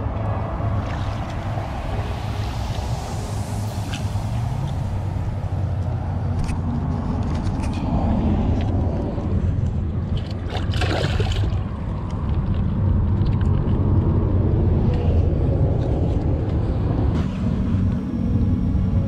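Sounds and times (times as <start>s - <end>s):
low rumble: 0.0s - 19.0s
fish splashing in shallow water: 0.2s - 5.3s, 9.8s - 12.6s.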